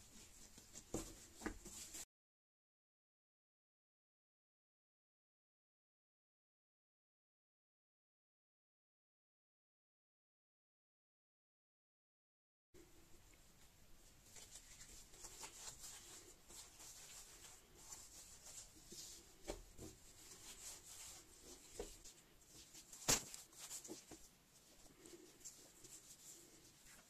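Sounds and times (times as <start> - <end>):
hands rolling dough: 0.0 - 2.1, 13.1 - 27.0.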